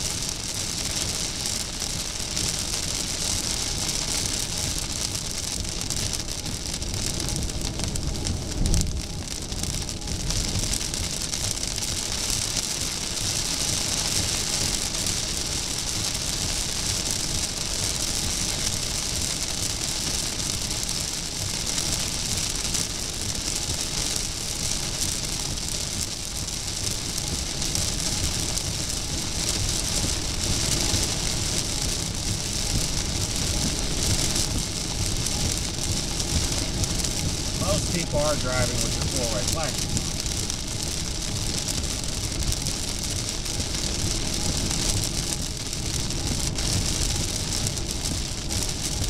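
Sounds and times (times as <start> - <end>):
heavy rain on car roof: 0.0 - 49.0
road and tyre noise: 28.0 - 49.0.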